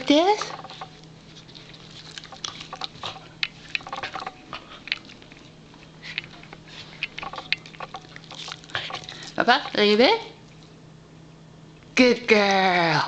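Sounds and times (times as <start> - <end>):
dog chewing and snuffling: 0.3 - 9.9.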